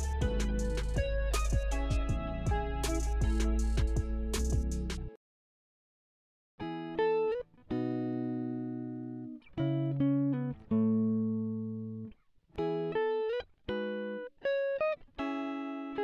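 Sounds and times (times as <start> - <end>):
plucked string melody: 0.0 - 5.1.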